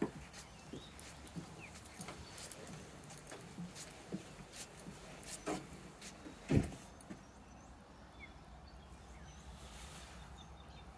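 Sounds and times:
footsteps on wooden deck: 0.0s - 7.3s.

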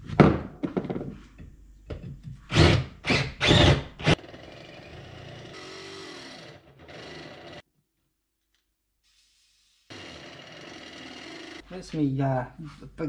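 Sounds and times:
drill boring through steel: 2.5s - 4.9s, 5.5s - 7.6s.

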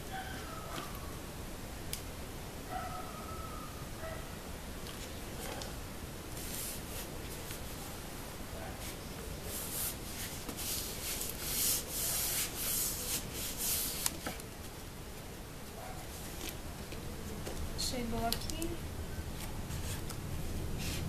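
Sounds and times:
hands brushing foam sheet: 6.4s - 7.6s, 8.8s - 14.4s.

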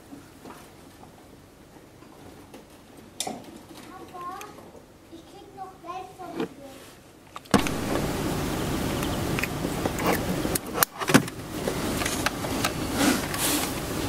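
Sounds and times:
car engine running: 7.6s - 14.0s.

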